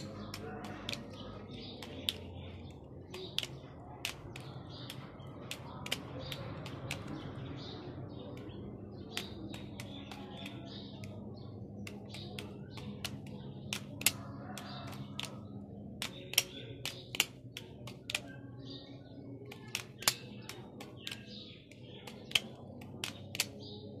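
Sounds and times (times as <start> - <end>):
butterfly knife metal clicks: 11.8 - 15.4.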